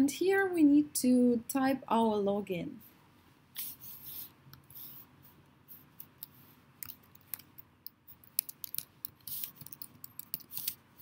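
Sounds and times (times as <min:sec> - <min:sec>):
keyboard typing: 0:06.0 - 0:10.8.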